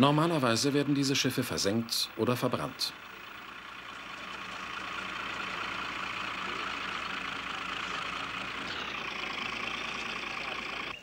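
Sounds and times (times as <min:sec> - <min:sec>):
heavy vehicle engine running: 0:00.0 - 0:11.0.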